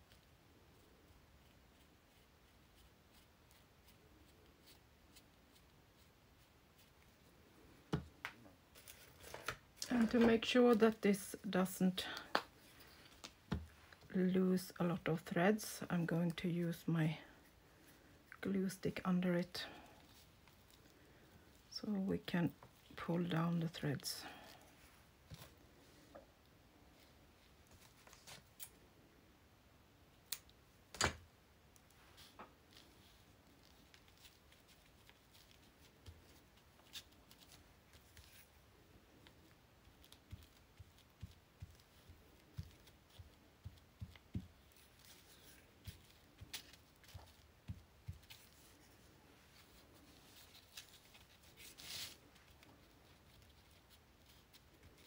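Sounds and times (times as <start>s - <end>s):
paper rustle: 39.2s - 55.0s.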